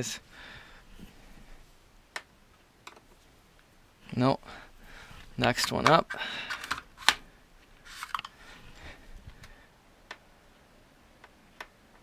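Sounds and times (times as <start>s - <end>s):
screwdrivers rustling: 4.9s - 9.6s.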